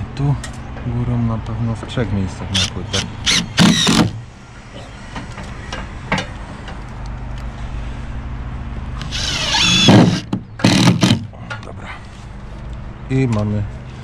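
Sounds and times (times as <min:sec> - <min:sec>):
power tool working on wood: 0:02.6 - 0:04.1, 0:09.0 - 0:11.2.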